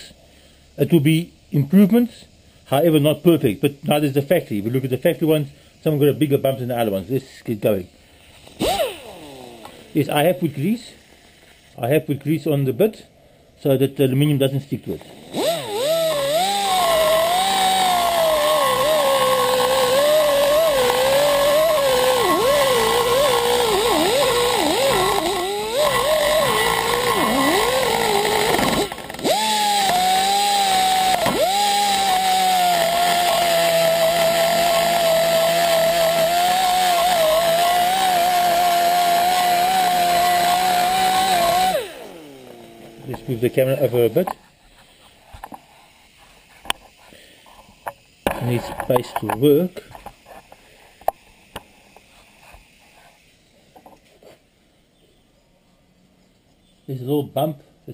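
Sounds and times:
rotary grinder whining on metal: 8.6s - 10.0s, 15.0s - 44.2s.

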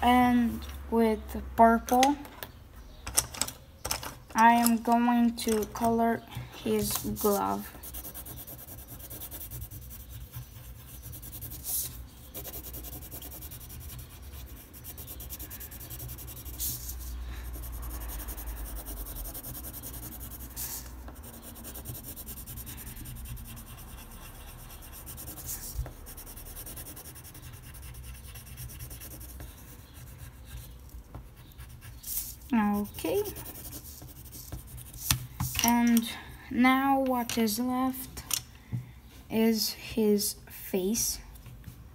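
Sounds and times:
pencil scratching on paper: 5.4s - 35.2s.

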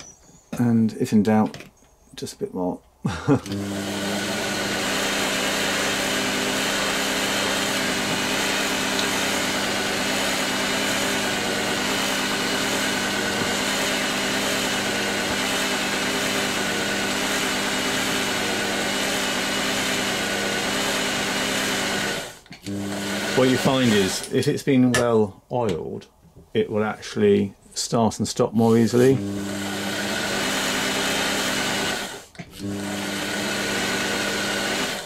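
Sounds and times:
sewing machine running: 3.5s - 24.3s, 29.1s - 35.0s.

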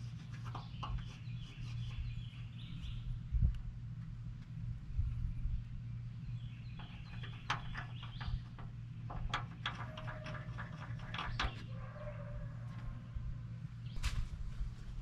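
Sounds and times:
marker scratching on steel: 0.0s - 2.1s
steady low hum: 0.0s - 15.0s.

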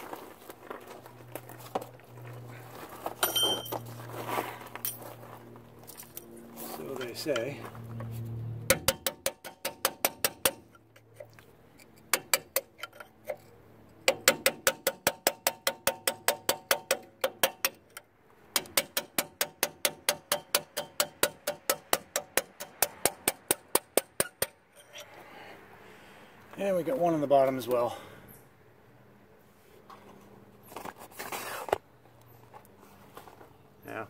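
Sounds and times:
hammer tapping metal punch: 8.7s - 10.8s, 12.0s - 13.1s, 14.0s - 25.0s.

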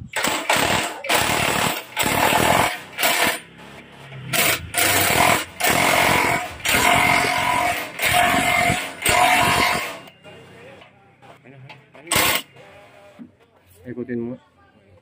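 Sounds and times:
impact wrench hammering: 0.1s - 10.1s, 12.1s - 12.5s.

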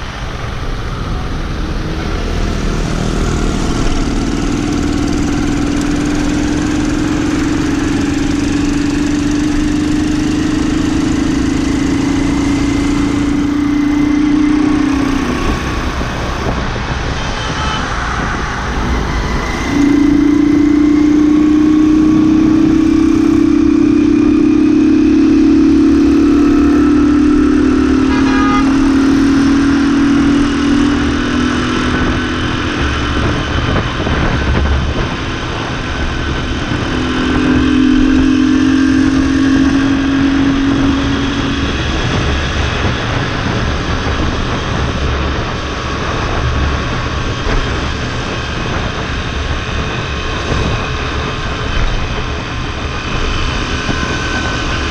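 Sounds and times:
motorbike engine droning: 0.0s - 54.9s
wind rumbling on microphone: 0.0s - 54.9s.

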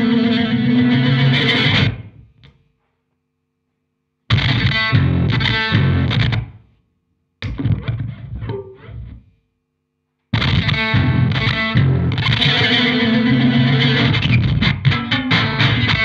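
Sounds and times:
distorted electric guitar noise: 0.0s - 2.6s, 4.3s - 6.7s, 7.4s - 9.3s, 10.3s - 16.0s.

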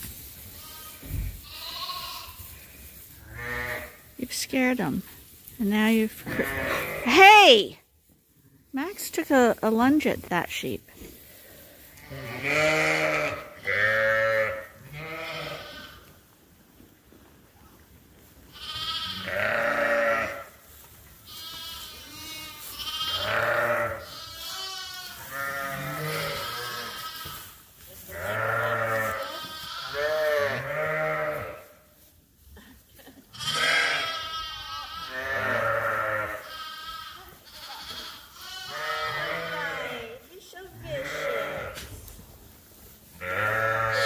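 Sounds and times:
sheep bleating: 0.6s - 2.4s, 3.3s - 4.0s, 6.2s - 7.5s, 12.0s - 16.0s, 18.5s - 20.5s, 21.3s - 27.4s, 28.1s - 31.8s, 33.3s - 40.2s, 40.8s - 41.8s, 43.2s - 44.0s.

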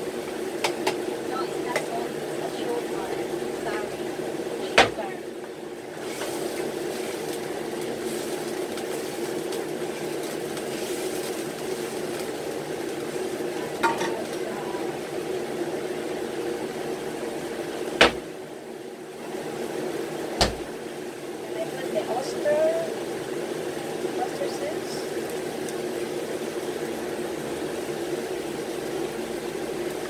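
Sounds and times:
low kitchen hum: 0.0s - 30.0s
sharp knock: 18.0s - 18.2s.

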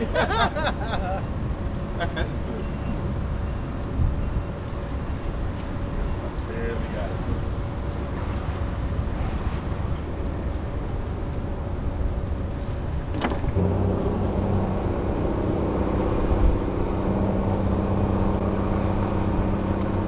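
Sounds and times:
wind and water rushing: 3.0s - 20.0s
boat motor running: 12.6s - 20.0s.

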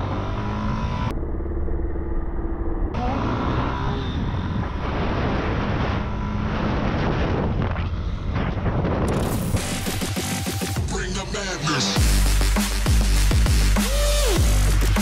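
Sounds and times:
road and wind noise: 0.0s - 10.0s.

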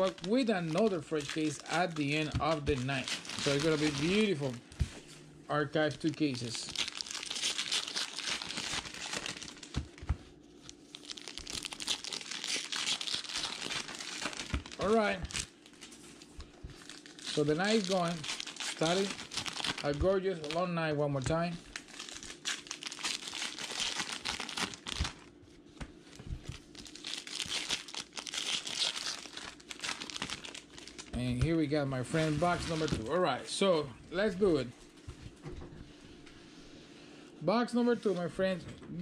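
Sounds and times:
wrapper crinkling and tearing: 0.0s - 4.6s, 5.8s - 10.0s, 10.6s - 25.3s, 26.5s - 31.2s, 32.0s - 33.1s.

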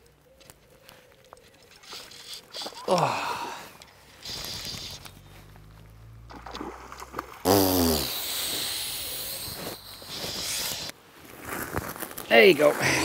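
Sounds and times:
fish splashing in water: 6.2s - 10.0s.

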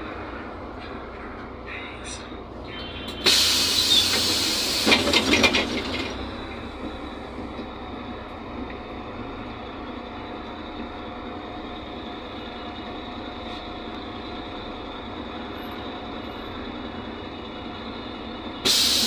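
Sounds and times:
bus running noise: 0.0s - 19.0s
loud air hiss: 3.2s - 4.9s, 18.6s - 19.0s.

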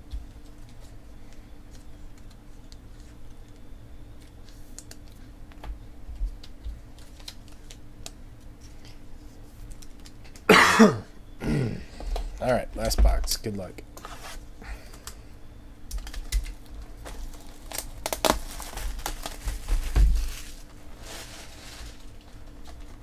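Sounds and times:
trading cards being handled: 0.1s - 10.4s
person coughing: 10.5s - 11.8s.

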